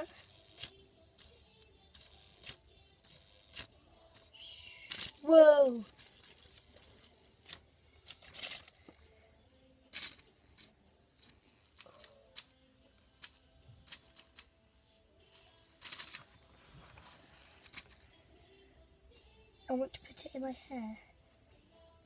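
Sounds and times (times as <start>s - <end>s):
toy clicks and rustles against hair: 0.0s - 9.2s, 9.8s - 18.2s.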